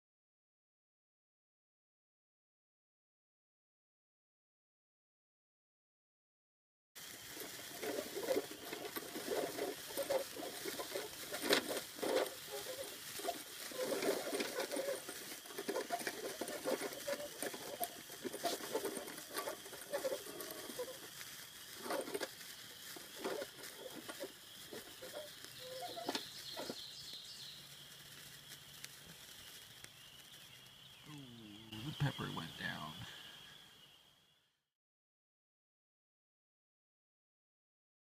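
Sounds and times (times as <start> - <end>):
sparklers fizzing: 7.0 - 33.5.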